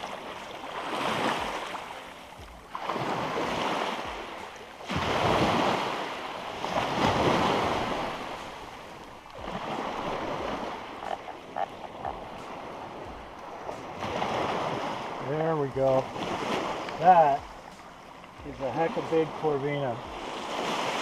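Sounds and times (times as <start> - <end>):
small surf breaking on beach: 2.8 - 10.8.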